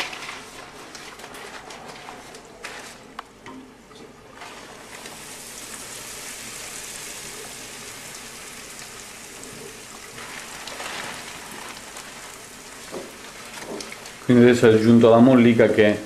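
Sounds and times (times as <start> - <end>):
breadcrumbs sizzling in hot oil: 4.6 - 14.9.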